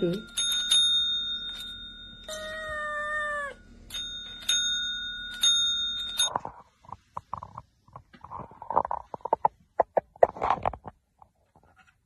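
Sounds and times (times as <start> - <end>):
service bell ringing: 0.0 - 6.3
kitten meowing: 2.3 - 3.6.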